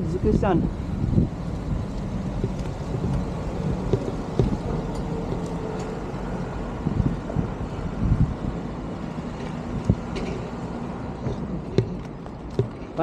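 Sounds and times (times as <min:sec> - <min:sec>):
wind and road rumble: 0:00.0 - 0:13.0
light knocks from bumps: 0:01.9 - 0:05.6, 0:11.2 - 0:13.0.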